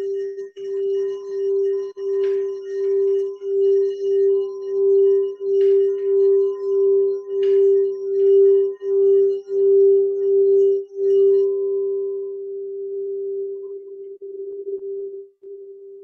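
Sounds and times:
singing bowl ringing tone: 0.0s - 16.0s.

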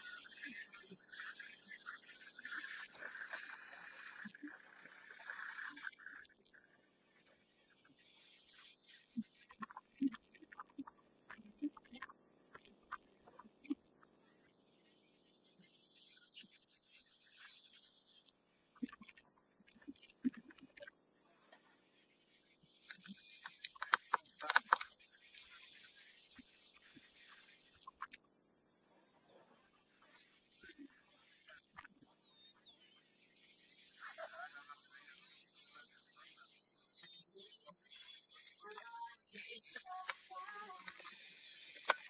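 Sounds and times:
insects trilling: 0.0s - 42.0s
faint clicks and taps: 22.8s - 25.5s.

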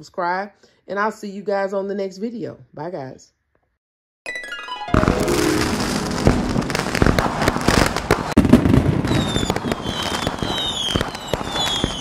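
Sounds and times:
fireworks crackling and popping: 4.9s - 12.0s
firework bang: 5.0s - 12.0s
high falling whistles: 9.1s - 12.0s.

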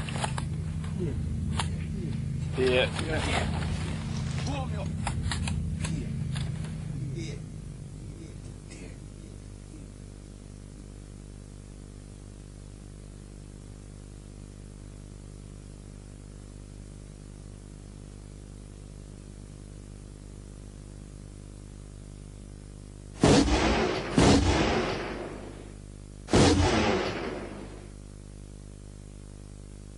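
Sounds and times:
electrical hum and hiss: 0.0s - 29.9s
sudden loud bang: 23.2s - 28.0s.

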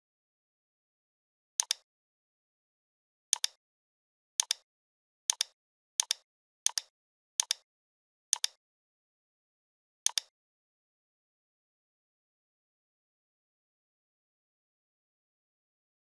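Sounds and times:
computer mouse double clicks: 1.6s - 1.8s, 3.4s - 3.6s, 4.4s - 4.6s, 5.3s - 7.6s, 8.4s - 8.6s, 10.1s - 10.3s.

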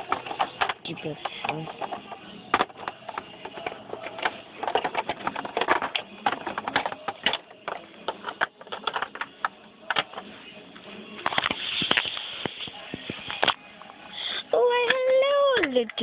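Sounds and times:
plastic toys clicking together: 0.0s - 10.2s.

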